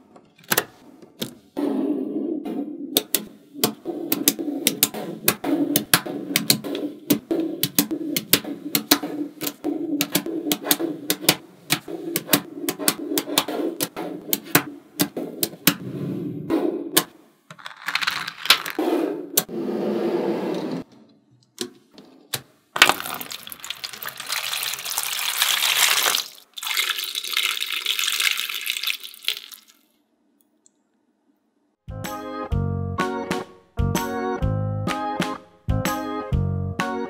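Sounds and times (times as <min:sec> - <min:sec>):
magnetic balls clicking: 0:02.9 - 0:15.8
balls rustling: 0:17.5 - 0:18.8, 0:22.8 - 0:29.8.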